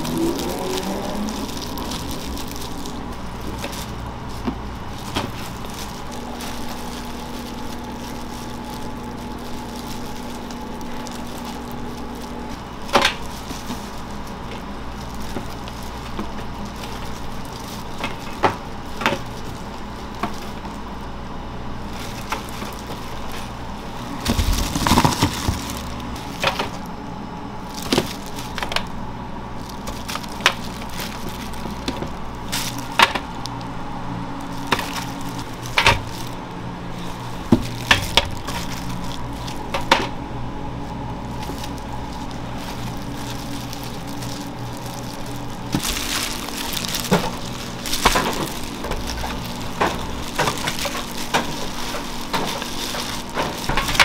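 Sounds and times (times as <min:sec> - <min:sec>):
machine hum: 0:00.0 - 0:54.0.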